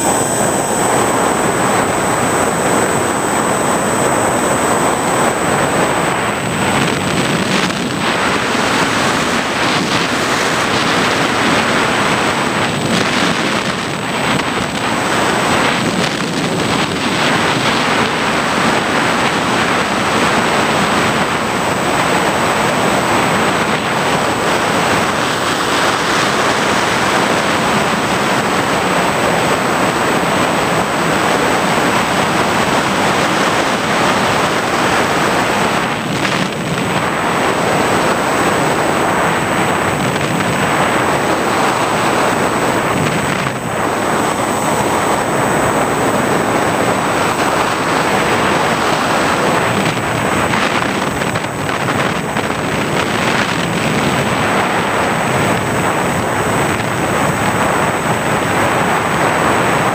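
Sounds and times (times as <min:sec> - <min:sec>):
motor noise: 0:00.0 - 0:29.5
thin high whine: 0:00.0 - 0:59.9
wind rush: 0:00.0 - 0:59.9.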